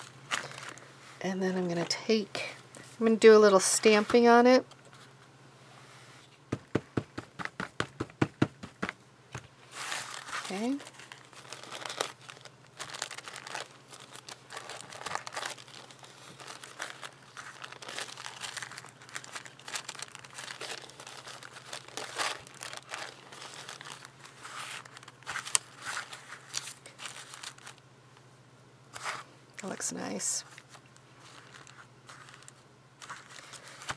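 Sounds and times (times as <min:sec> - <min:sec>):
paper coffee filter crinkling: 0:00.0 - 0:02.0, 0:09.7 - 0:27.8, 0:28.9 - 0:33.9.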